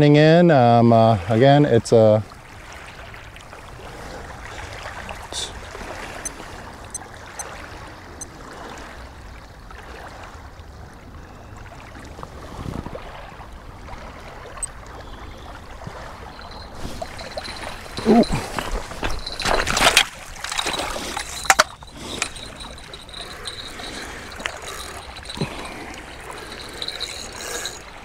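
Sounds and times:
small waves lapping on rocks: 0.2s - 28.0s
wind rumbling on microphone: 12.1s - 28.0s.

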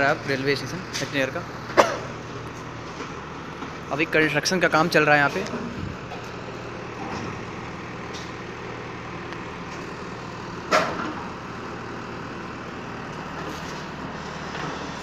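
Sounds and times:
backhoe engine idling: 0.0s - 15.0s.

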